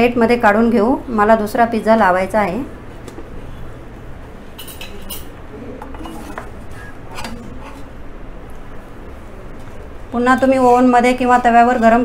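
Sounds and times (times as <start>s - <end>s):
metal spatula scraping pizza pan: 6.0s - 8.0s.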